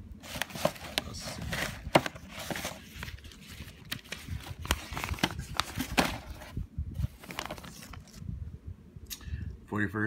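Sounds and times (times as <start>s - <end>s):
paper and packaging rustling: 0.2s - 8.2s.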